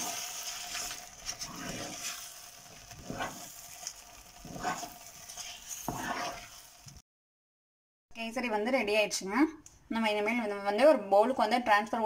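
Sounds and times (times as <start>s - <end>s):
ghee sizzling: 0.0s - 7.0s
spatula scraping a pan: 0.0s - 7.0s.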